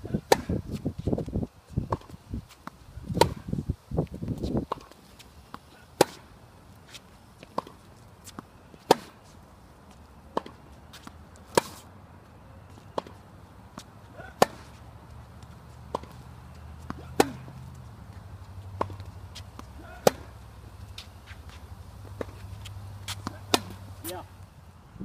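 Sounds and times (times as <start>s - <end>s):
racket hitting tennis ball: 0.1s - 0.7s, 1.9s - 3.5s, 4.7s - 5.0s, 5.6s - 6.3s, 6.9s - 9.2s, 10.3s - 11.9s, 12.9s - 13.2s, 13.8s - 14.8s, 15.4s - 24.2s
ball bouncing: 18.6s - 24.2s.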